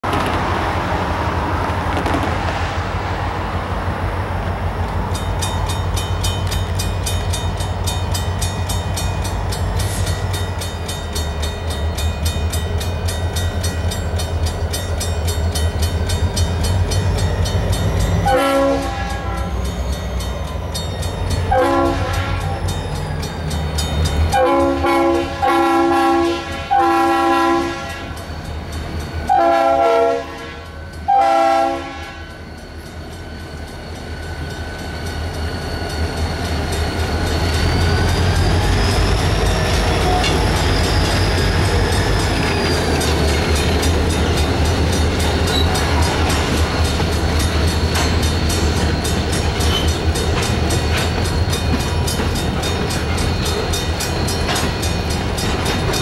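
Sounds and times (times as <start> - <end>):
crossing bell ringing: 4.9 - 56.0
locomotive horn blasts: 18.2 - 19.5, 21.5 - 22.6, 24.3 - 28.2, 29.3 - 32.4.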